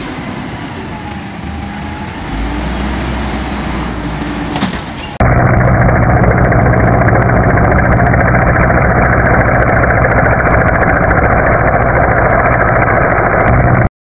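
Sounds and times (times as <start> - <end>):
helicopter hovering: 5.2 - 13.9.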